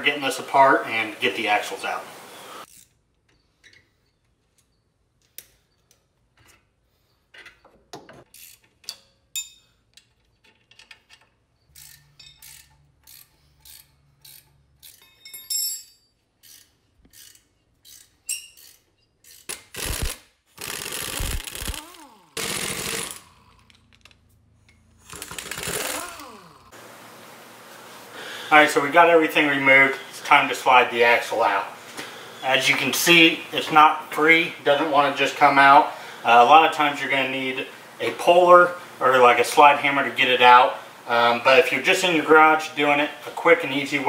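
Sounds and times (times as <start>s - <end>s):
metal tools clinking: 8.2s - 19.5s
impact wrench running: 19.3s - 23.7s, 25.0s - 26.8s.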